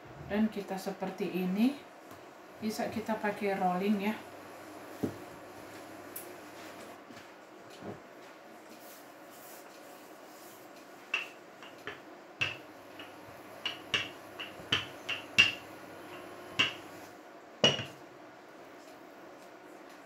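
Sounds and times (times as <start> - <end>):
rolling pin knocking on mat: 11.2 - 15.6, 17.6 - 18.0.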